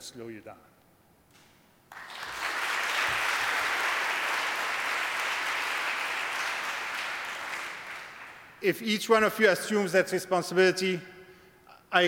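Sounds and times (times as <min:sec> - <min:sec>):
large audience applauding: 0:01.9 - 0:08.6.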